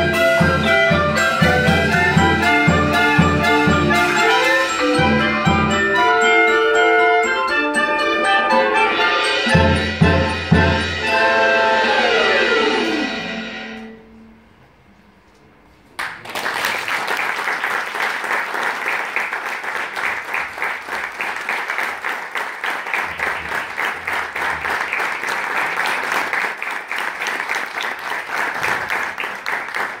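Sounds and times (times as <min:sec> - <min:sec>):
audience applauding: 0:16.0 - 0:30.0.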